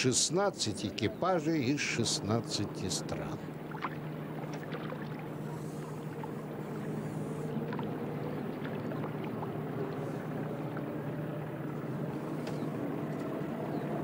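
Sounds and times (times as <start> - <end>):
low hum: 0.0 - 14.0
faint clicks: 12.4 - 13.3.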